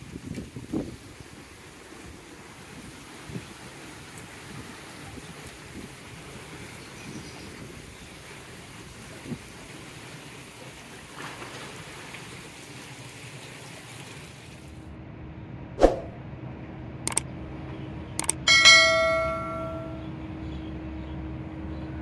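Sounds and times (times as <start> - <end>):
mouse clicks: 18.2 - 18.4
notification bell ding: 18.2 - 20.0.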